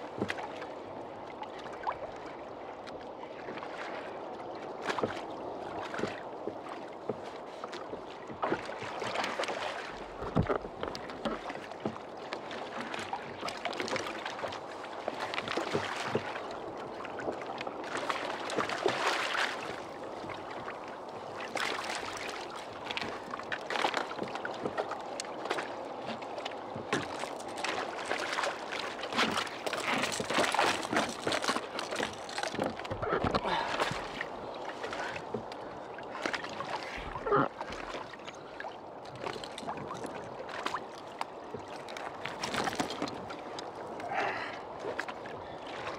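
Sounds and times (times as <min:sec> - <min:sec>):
water lapping against kayak hull: 0:00.0 - 0:45.9
fish thrashing and splashing: 0:27.0 - 0:34.2.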